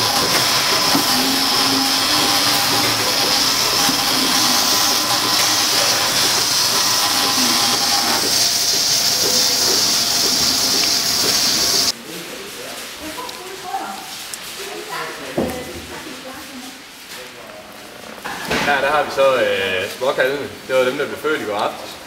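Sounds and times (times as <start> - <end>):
milking machine hissing: 0.0 - 12.0.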